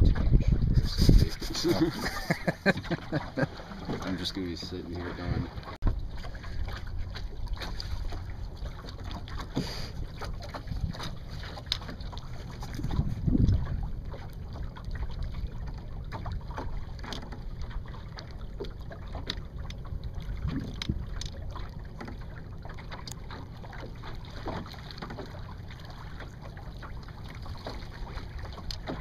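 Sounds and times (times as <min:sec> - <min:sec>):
wind buffeting microphone: 0:00.0 - 0:03.1, 0:09.9 - 0:16.4, 0:19.8 - 0:21.4
water lapping against hull: 0:00.0 - 0:29.0.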